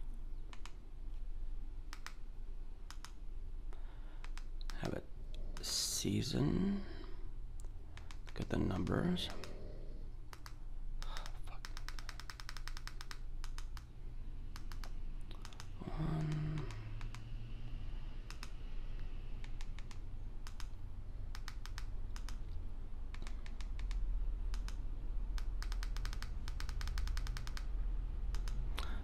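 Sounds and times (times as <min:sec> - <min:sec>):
steady low hum: 0:00.0 - 0:29.0
remote control buttons clicking: 0:00.5 - 0:00.8, 0:01.9 - 0:03.2, 0:04.2 - 0:05.7, 0:10.2 - 0:13.9, 0:14.5 - 0:17.3, 0:18.3 - 0:24.8, 0:25.4 - 0:27.7.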